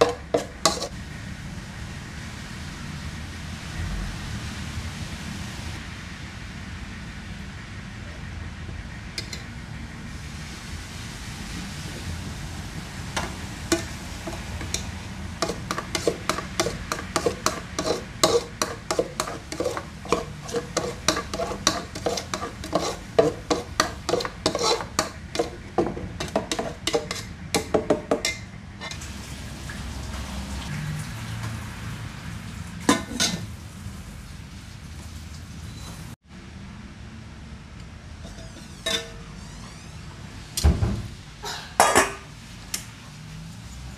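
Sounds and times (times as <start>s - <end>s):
metal lid clanking: 0.0s - 0.9s, 38.2s - 39.3s
metal spoon scraping pot: 0.0s - 0.9s, 13.2s - 29.0s, 38.2s - 39.3s.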